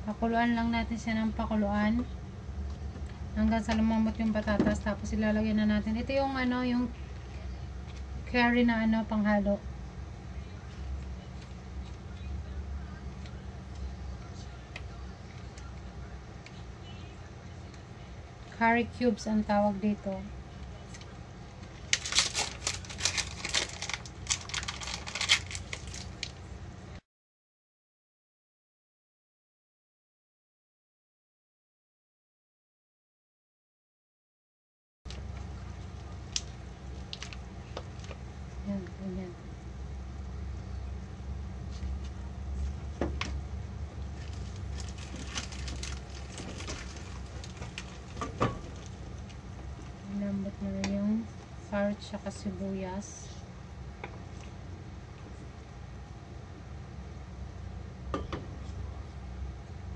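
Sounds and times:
low steady hum: 0:00.0 - 0:27.0, 0:35.1 - 0:59.9
plastic packaging crinkling: 0:21.7 - 0:26.5, 0:35.1 - 0:38.2, 0:44.2 - 0:49.9
gas burner rumble: 0:35.1 - 0:59.9.

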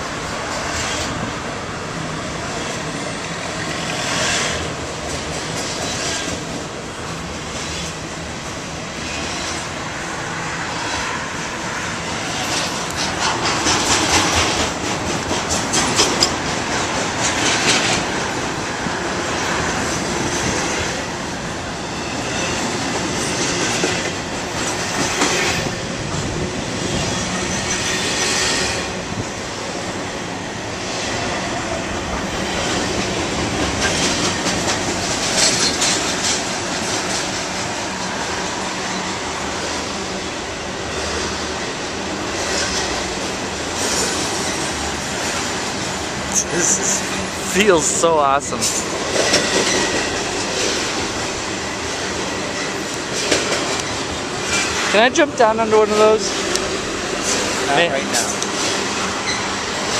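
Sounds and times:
train wheels clattering: 0:12.0 - 0:21.2, 0:21.9 - 0:29.3, 0:31.0 - 0:40.2, 0:40.8 - 0:59.9.

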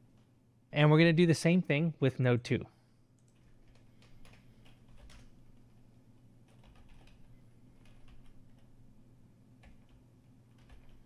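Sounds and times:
low steady hum: 0:00.0 - 0:11.0
keyboard keystrokes: 0:06.5 - 0:08.7.

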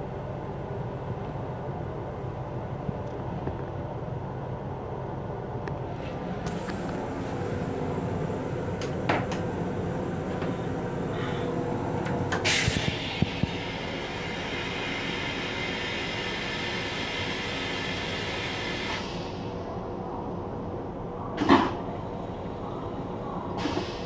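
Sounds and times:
railcar rumble: 0:00.0 - 0:24.0
train toilet flushing: 0:06.2 - 0:19.7, 0:21.4 - 0:24.0.

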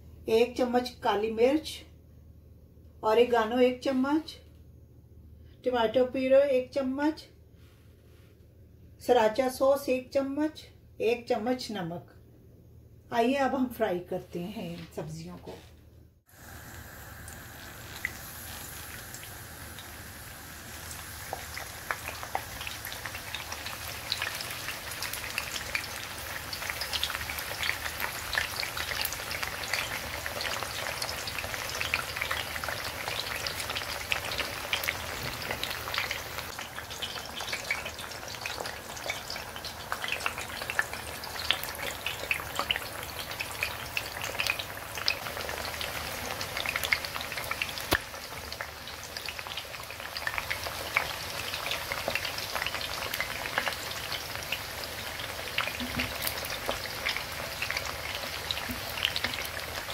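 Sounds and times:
eggplant sizzling in hot oil: 0:16.2 - 0:59.9.

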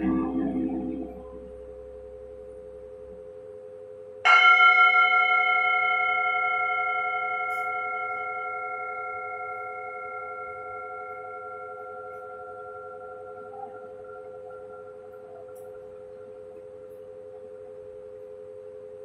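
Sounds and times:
singing bowl struck: 0:00.0 - 0:02.1, 0:04.2 - 0:16.8
singing bowl low tone: 0:00.0 - 0:19.0.

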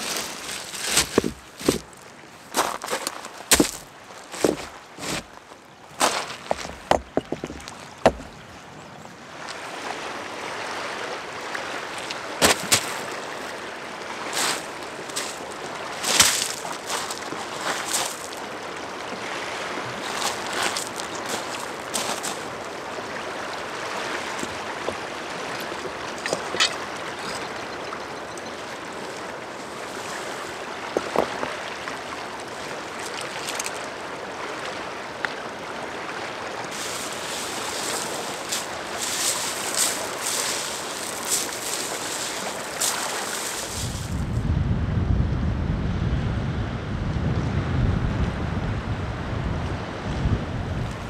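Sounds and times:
rocks clacking together: 0:00.0 - 0:05.4, 0:06.0 - 0:08.4, 0:16.0 - 0:18.4, 0:25.6 - 0:27.5, 0:30.9 - 0:31.6, 0:36.8 - 0:44.0
small waves on pebble shore: 0:00.0 - 0:08.4, 0:09.2 - 0:44.2
wind rumble on microphone: 0:43.6 - 0:51.0.

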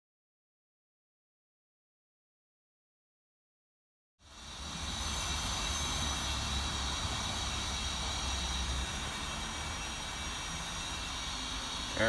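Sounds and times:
compressed air hissing: 0:04.2 - 0:12.0.

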